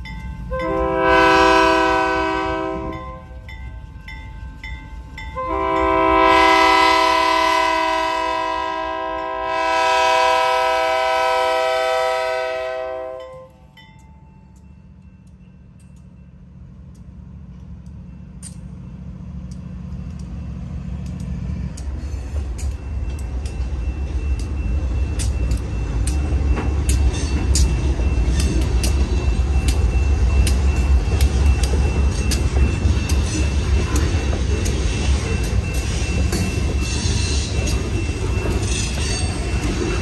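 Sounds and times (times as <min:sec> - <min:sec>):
diesel locomotive rumble: 0:00.0 - 0:40.0
wheels clicking over rail joints: 0:13.2 - 0:40.0.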